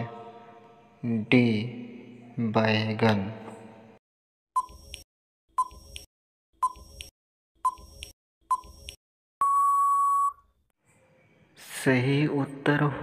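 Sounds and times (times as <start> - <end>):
long electronic beep: 9.4 - 10.4.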